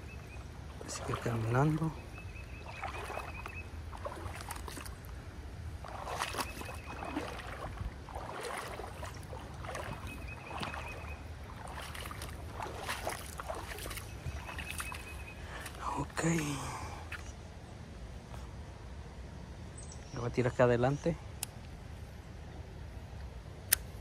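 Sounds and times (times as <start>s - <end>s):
feet wading through water: 0.0s - 17.2s.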